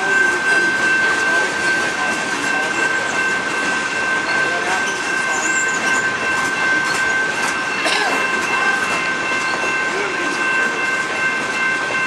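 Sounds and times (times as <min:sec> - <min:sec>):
freight train rumbling on rails: 0:00.0 - 0:12.0.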